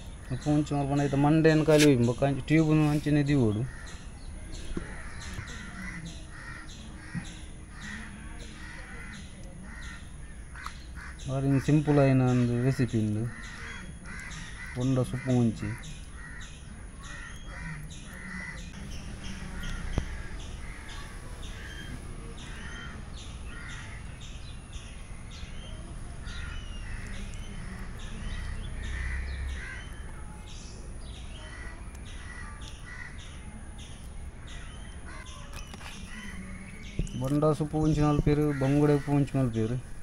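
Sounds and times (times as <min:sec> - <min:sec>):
crows cawing: 0:03.5 - 0:04.0, 0:04.8 - 0:24.3, 0:25.6 - 0:30.1, 0:31.3 - 0:33.3, 0:34.4 - 0:35.4, 0:36.1 - 0:36.7, 0:38.1 - 0:39.8.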